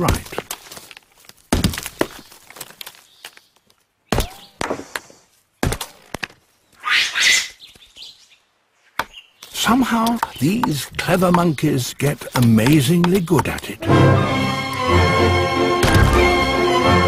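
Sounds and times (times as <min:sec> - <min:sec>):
stone hammer striking nut: 0:10.0 - 0:11.5.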